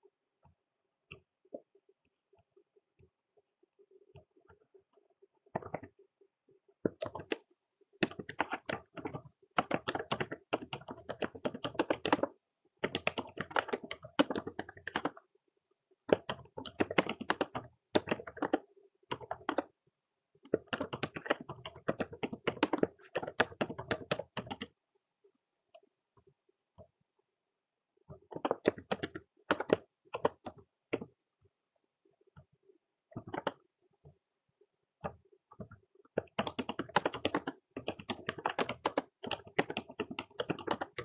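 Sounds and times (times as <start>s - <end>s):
typing on a computer keyboard: 6.9s - 15.2s, 16.0s - 19.7s, 20.4s - 24.8s, 28.2s - 31.1s, 33.1s - 33.6s, 35.0s - 41.0s.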